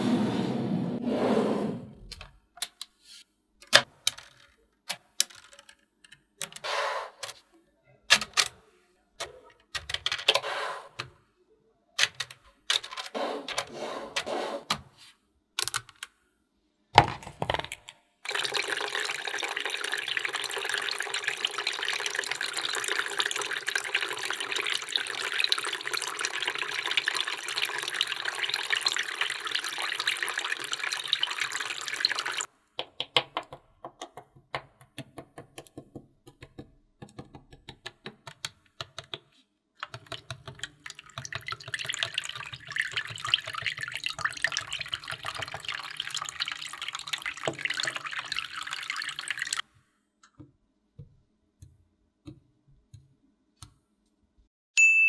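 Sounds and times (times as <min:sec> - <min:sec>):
water pouring into pool: 0:18.2 - 0:32.5, 0:40.0 - 0:49.6.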